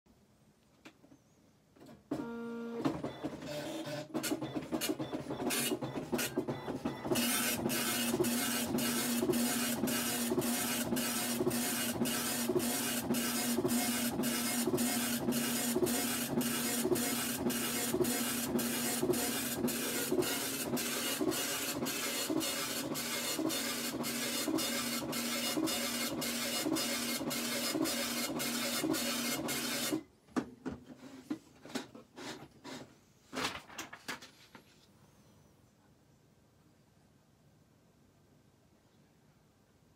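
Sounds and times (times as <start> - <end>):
dot-matrix printer printing: 2.2 - 30.0.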